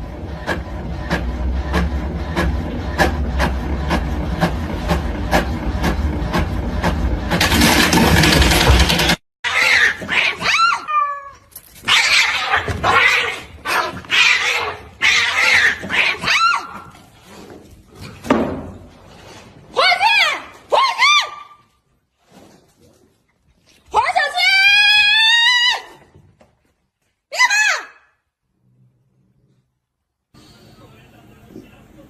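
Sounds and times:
printer rushing noise: 0:00.0 - 0:09.2
cats yowling: 0:09.5 - 0:16.9.

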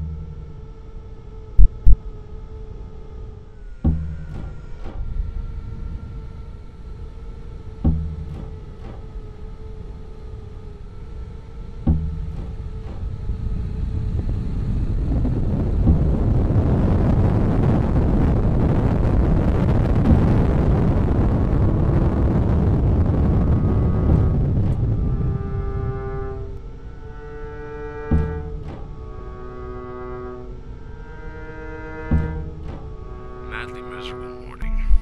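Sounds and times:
dense rumble: 0:00.0 - 0:27.2
steady drone: 0:00.0 - 0:35.0
deep booming hits: 0:01.6 - 0:02.0, 0:03.6 - 0:10.5, 0:11.8 - 0:26.6.

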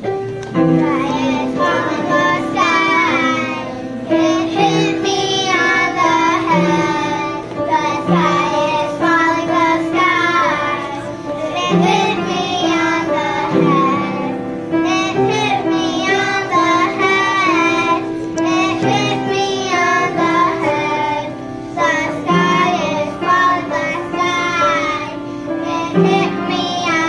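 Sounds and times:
piano accompaniment: 0:00.0 - 0:27.0
children singing: 0:00.5 - 0:27.0.

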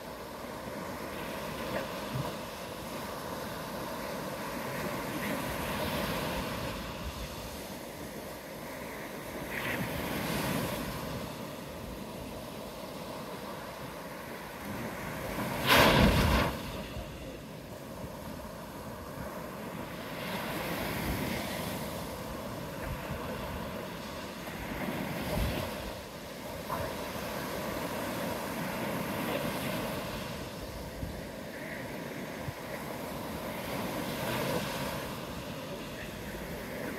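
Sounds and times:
surf washing onto beach: 0:00.0 - 0:36.9
wind on microphone: 0:14.6 - 0:19.5, 0:20.2 - 0:35.3.

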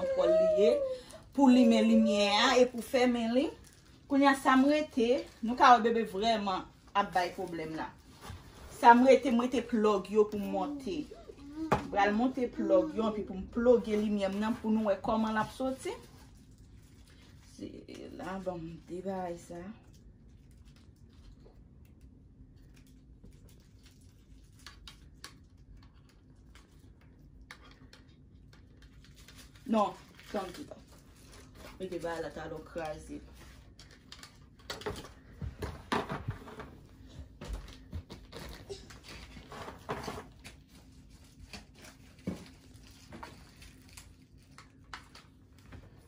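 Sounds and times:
low steady hum: 0:00.0 - 0:46.0
packaging rustling: 0:36.4 - 0:46.0.

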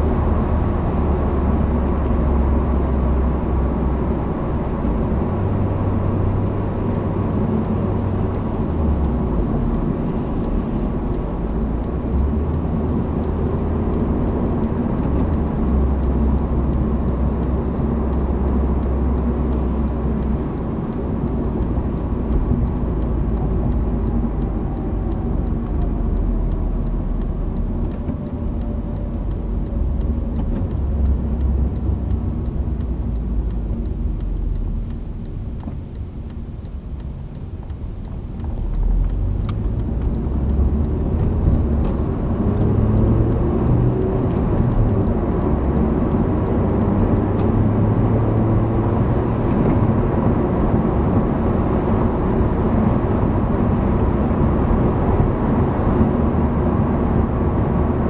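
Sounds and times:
car engine and tyre drone: 0:00.0 - 0:58.0
faint regular ticking: 0:04.5 - 0:50.7.

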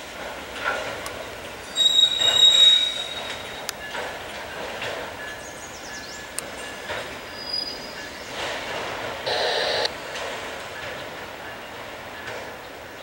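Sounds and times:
rumble of rolling train cars: 0:00.0 - 0:13.0
train wheels squealing: 0:01.7 - 0:04.1, 0:05.2 - 0:08.3.

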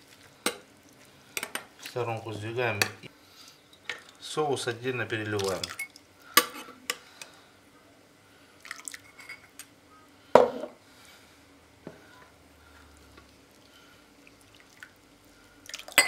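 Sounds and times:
metal spoon clinking on glass: 0:05.6 - 0:06.5
liquid dripping: 0:13.1 - 0:16.0.

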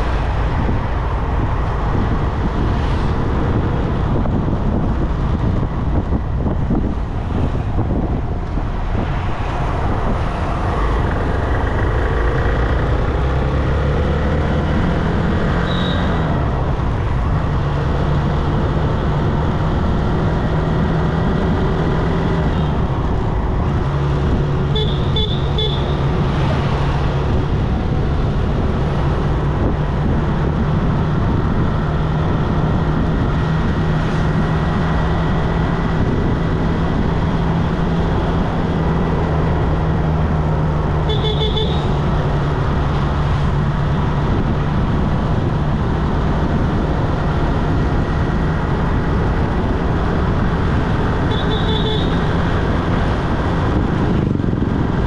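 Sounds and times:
road and traffic noise: 0:00.0 - 0:55.0
high-pitched horn toots: 0:41.0 - 0:42.0.

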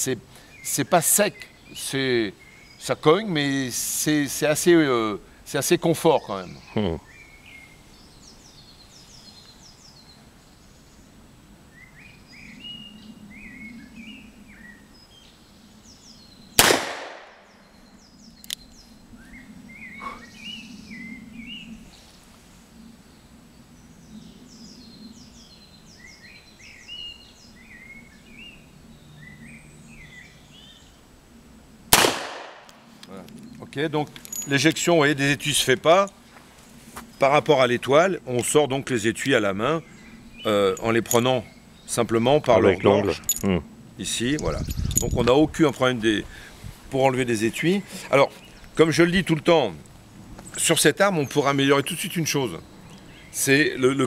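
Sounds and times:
birds chirping faintly: 0:00.0 - 0:31.9, 0:32.6 - 0:54.0
revolver shots with echo: 0:16.6 - 0:17.4, 0:32.0 - 0:32.7.

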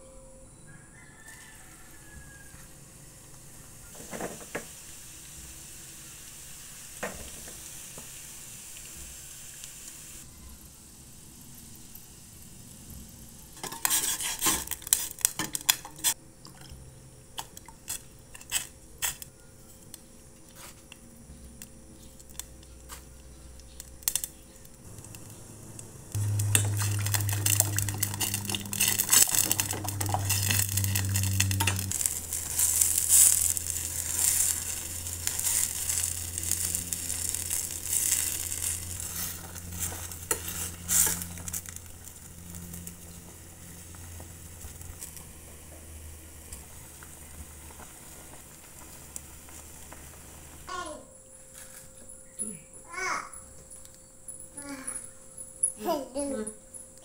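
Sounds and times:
low steady hum: 0:19.4 - 0:57.0
soup bubbling at the boil: 0:24.9 - 0:50.7.

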